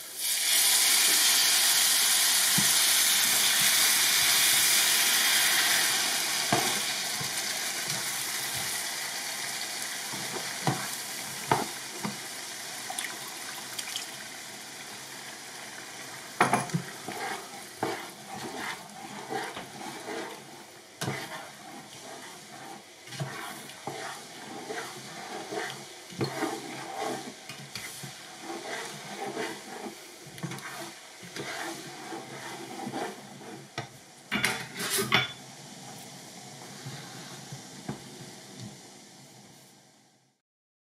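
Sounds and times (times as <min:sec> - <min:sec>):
liquid sizzling in hot pan: 0:00.0 - 0:40.2
spatula scraping and knocking pan: 0:05.3 - 0:08.8, 0:10.1 - 0:12.2, 0:16.4 - 0:35.4.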